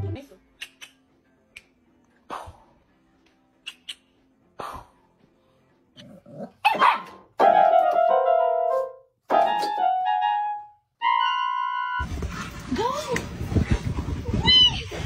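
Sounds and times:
puppy barking: 0:06.5 - 0:07.3.

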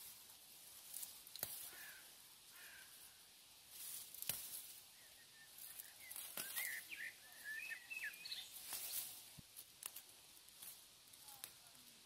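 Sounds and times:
tall grass rustling: 0:00.0 - 0:12.0
flower stems snapping: 0:00.9 - 0:01.9, 0:04.1 - 0:04.7, 0:05.8 - 0:06.9, 0:08.5 - 0:11.8
small bird chirping: 0:04.9 - 0:09.0.

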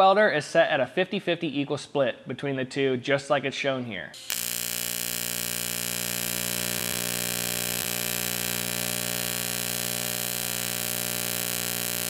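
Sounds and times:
welding arc buzzing: 0:04.2 - 0:12.0.

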